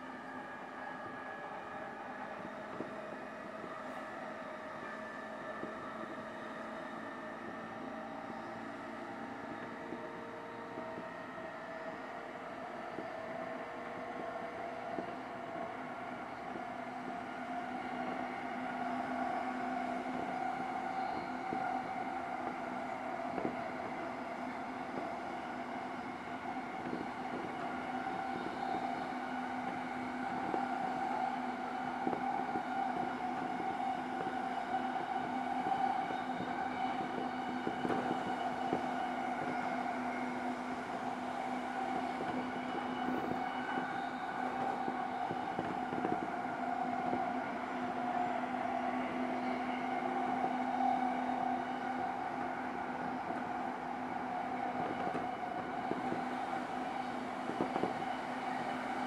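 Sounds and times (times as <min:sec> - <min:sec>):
wheels rumbling on rail: 0:00.0 - 0:53.7
train motor and gear hum: 0:15.7 - 0:52.3.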